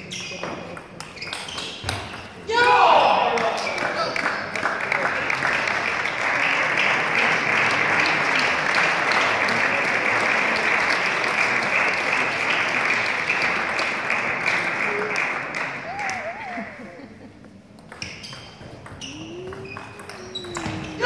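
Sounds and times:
spectators clapping: 3.1s - 17.2s.

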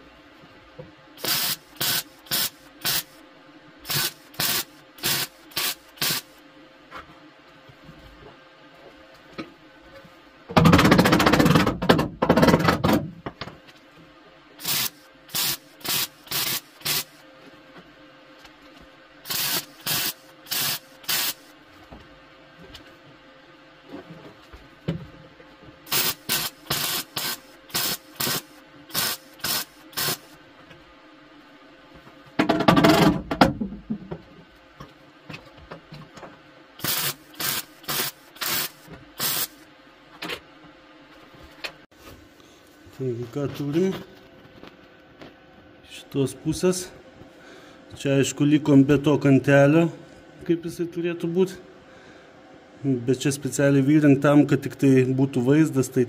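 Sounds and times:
welder arc crackling: 1.2s - 3.2s, 3.8s - 6.4s, 14.6s - 17.2s, 19.2s - 21.5s, 25.9s - 30.4s, 36.8s - 39.6s.

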